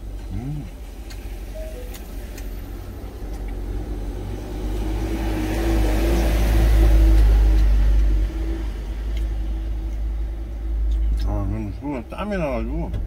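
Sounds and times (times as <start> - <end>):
vehicle passing on wet road: 2.8 - 9.5.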